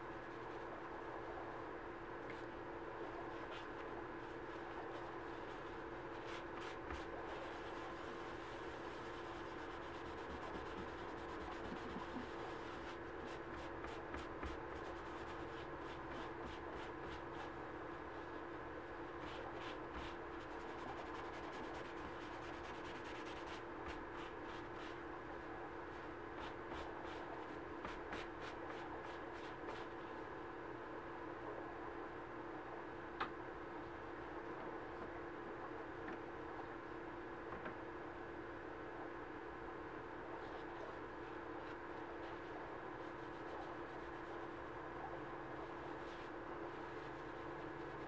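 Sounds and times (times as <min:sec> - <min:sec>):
steady background hum: 0:00.0 - 0:48.0
cloth scrubbing leather: 0:05.0 - 0:17.5.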